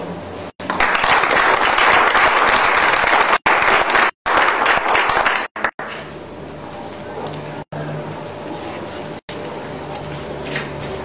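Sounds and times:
audience applauding: 0:00.7 - 0:05.8.

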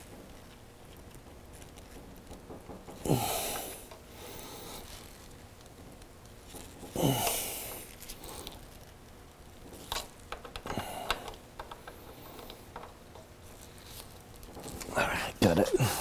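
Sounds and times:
person breathing loudly: 0:03.0 - 0:04.9, 0:07.0 - 0:08.6, 0:10.7 - 0:11.3.

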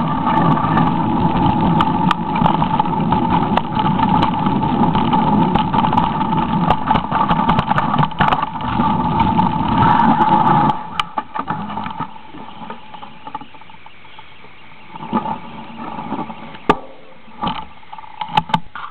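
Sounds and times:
mountain bike rattling over dirt: 0:00.0 - 0:18.9.

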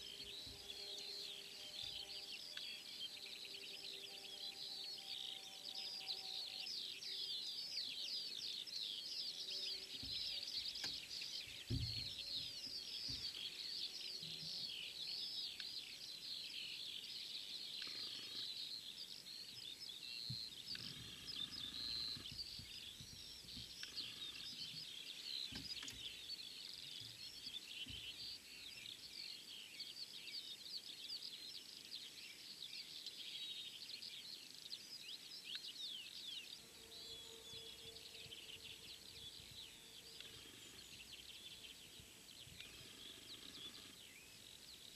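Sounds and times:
many birds chirping and singing: 0:00.0 - 0:44.9.

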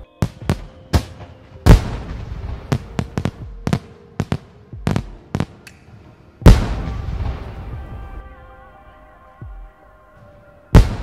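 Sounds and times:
fireworks bursting: 0:00.0 - 0:08.3, 0:10.7 - 0:11.0
rumbling echo: 0:00.2 - 0:08.5
loud firework boom: 0:06.4 - 0:08.1.

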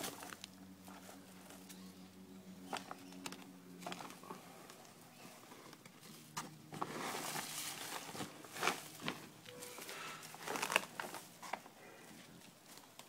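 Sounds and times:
soil spilling and rustling: 0:06.7 - 0:11.2.

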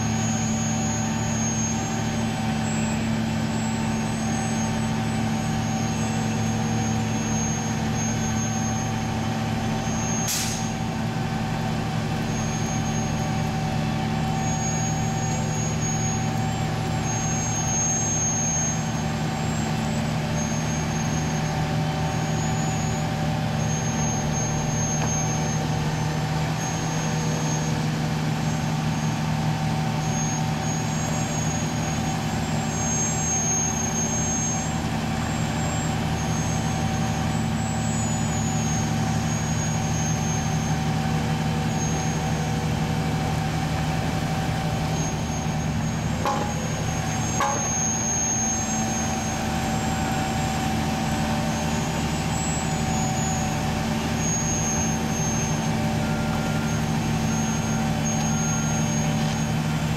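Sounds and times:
short high squeals: 0:00.0 - 0:11.0, 0:11.6 - 0:27.8, 0:30.0 - 0:40.9, 0:44.7 - 0:59.9
diesel engines under load: 0:00.0 - 0:59.9
steady whine: 0:45.9 - 0:49.4.

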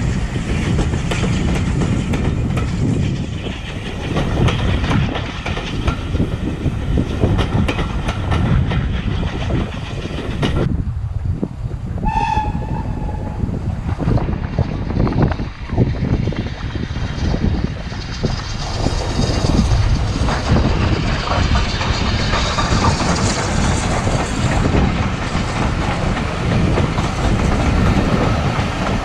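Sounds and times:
train wheels clicking over rail joints: 0:00.0 - 0:10.7, 0:12.2 - 0:29.0
wind noise: 0:00.0 - 0:29.0
steam locomotive whistle: 0:12.0 - 0:13.5.

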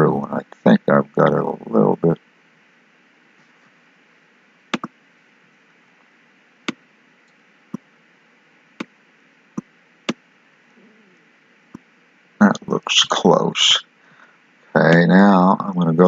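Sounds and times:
computer mouse clicking: 0:04.8 - 0:05.0.

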